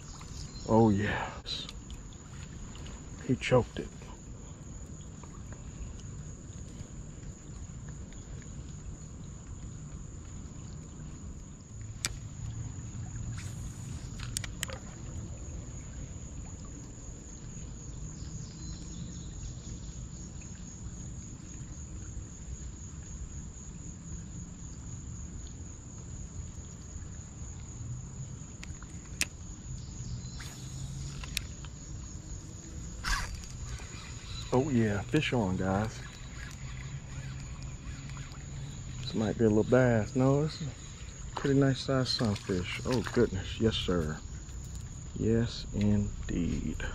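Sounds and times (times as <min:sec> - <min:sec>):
high-pitched insect drone: 0:29.6 - 0:46.9
steady low rumble: 0:34.8 - 0:46.9.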